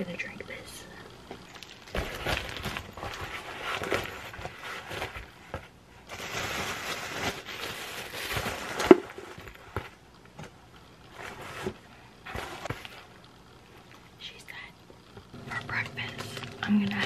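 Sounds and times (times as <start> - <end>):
bag rustling and crinkling: 1.4 - 9.9.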